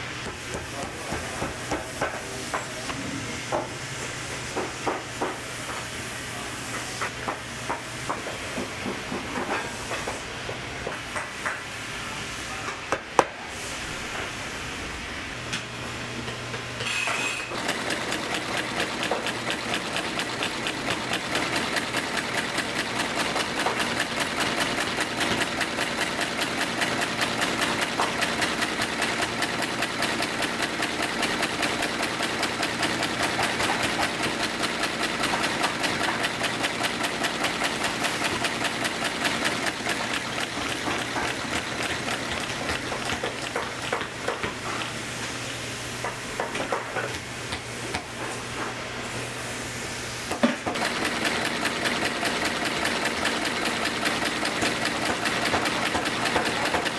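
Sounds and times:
sewing machine stitching leather: 17.0 - 45.0, 50.3 - 56.9.

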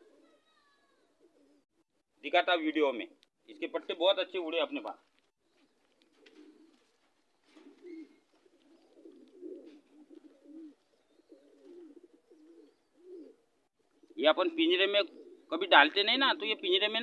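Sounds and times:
pigeons cooing: 0.0 - 2.0, 5.4 - 17.0.

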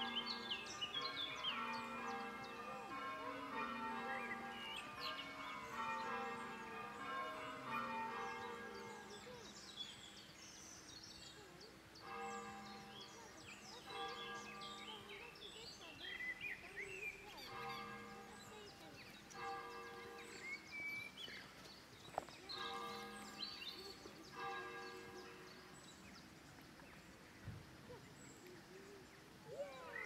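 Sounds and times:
church bells ringing: 0.0 - 10.0, 12.0 - 15.9, 17.1 - 20.7, 22.4 - 26.0
birds singing: 0.0 - 30.0.

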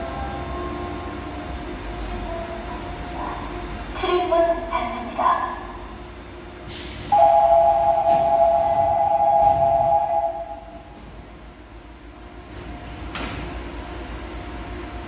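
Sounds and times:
low train hum: 0.0 - 15.0
short hiss of air: 6.7 - 7.3
door-closing warning buzzer: 7.1 - 10.7.

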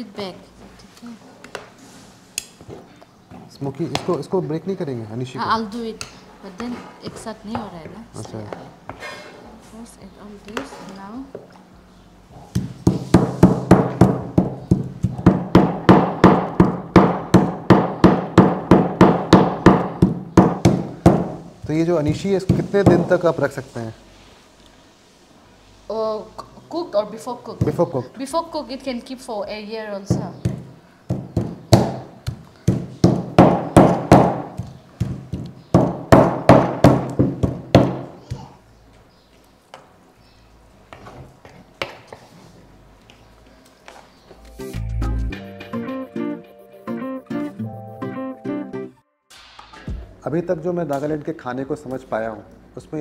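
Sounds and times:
wooden pestle pounding in bowl: 12.5 - 21.8, 22.4 - 23.2, 30.1 - 38.1.

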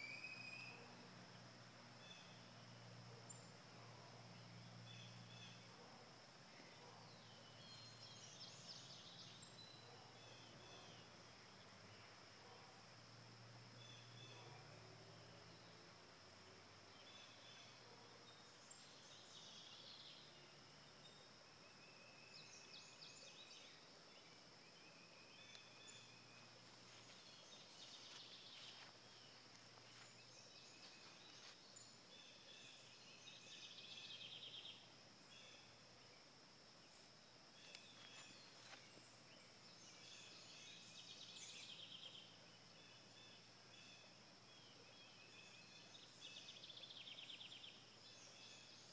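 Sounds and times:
birds chirping: 21.1 - 35.8.

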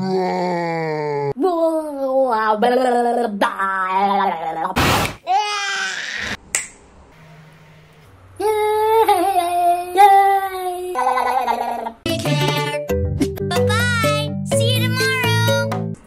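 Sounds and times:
sharp snap: 4.8 - 5.2, 6.5 - 6.9.

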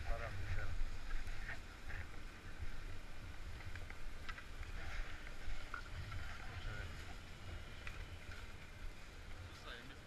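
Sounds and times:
low uneven rumble: 0.0 - 10.0
skis and poles clicking: 3.4 - 8.8.

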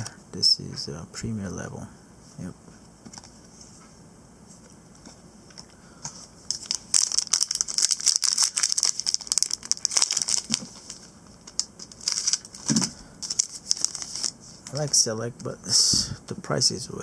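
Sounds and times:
foil wrapper crinkling: 6.5 - 15.0.

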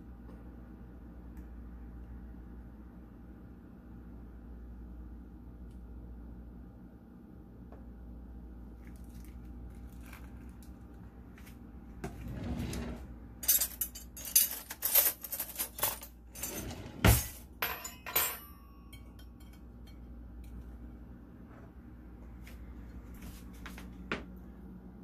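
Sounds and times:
low steady hum: 0.0 - 25.0
plate and fork clinking on stone: 17.6 - 20.0.

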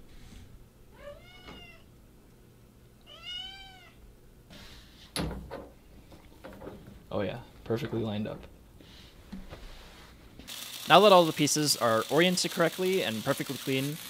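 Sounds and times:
cat meowing: 0.9 - 1.9, 3.0 - 4.0.

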